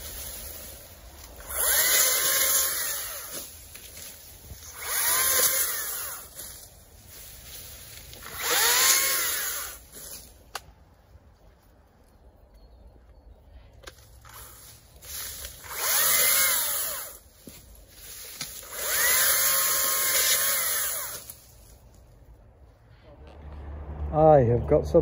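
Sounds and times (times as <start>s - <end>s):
chainsaw cutting grass stalks: 0.0s - 10.4s, 14.2s - 21.8s.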